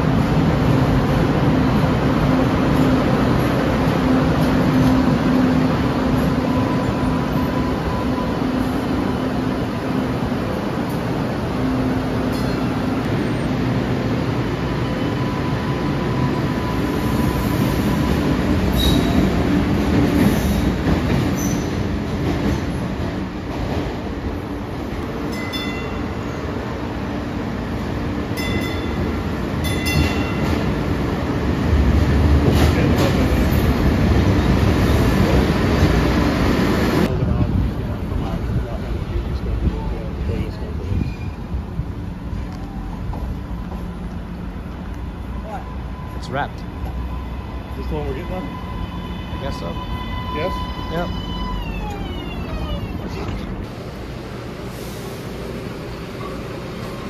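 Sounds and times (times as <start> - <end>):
train rumble and hum: 0.0 - 57.0
high train squeals: 1.7 - 23.0, 39.7 - 44.2, 45.0 - 53.6.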